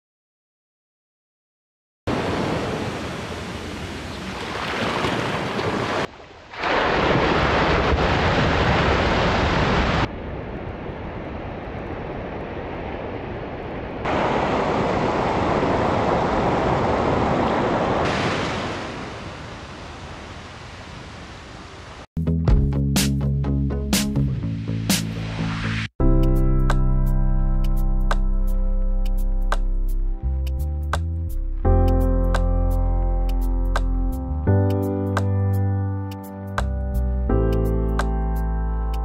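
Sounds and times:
surf washing onto sand: 2.1 - 10.1, 14.0 - 21.4.

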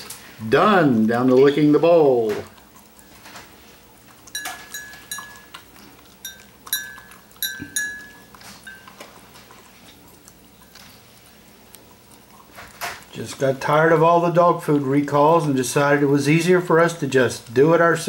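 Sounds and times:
dog licking: 0.0 - 18.0
dog bowl clinking: 4.3 - 9.2.

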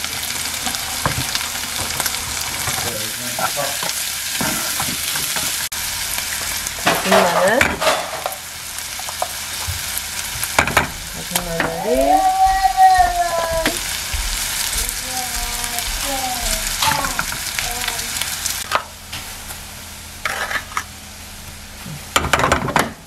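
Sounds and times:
food sizzling in a pan: 0.0 - 23.0
wooden spatula scraping a pan: 0.6 - 5.6, 20.2 - 20.9.

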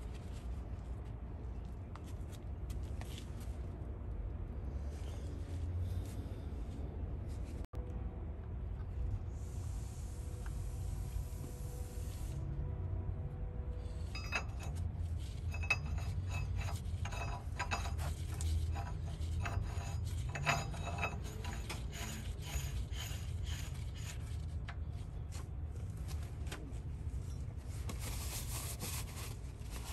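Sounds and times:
gloved hand scraping metal: 14.0 - 25.3.

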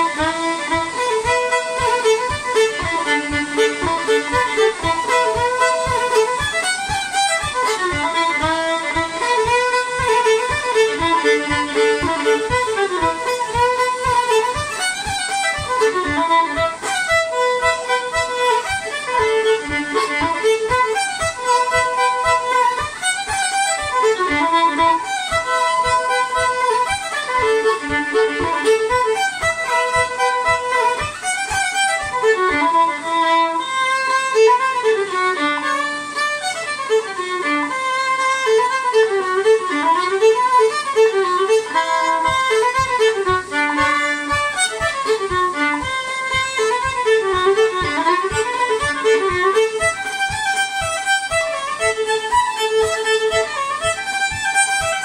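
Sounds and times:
low thump beat: 0.0 - 55.0
solo fiddle tune: 0.0 - 55.0.

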